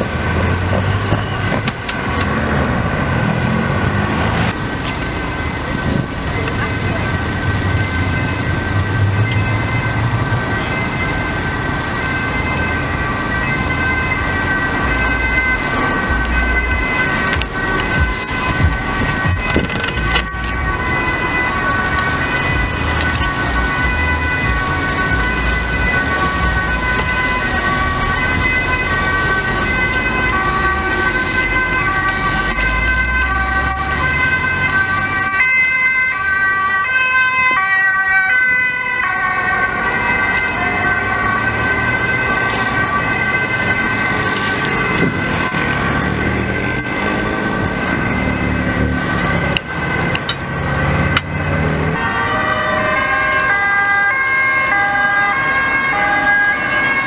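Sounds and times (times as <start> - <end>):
engine noise: 0.0 - 57.0
road traffic: 0.0 - 57.0
two-tone emergency sirens: 0.0 - 57.0.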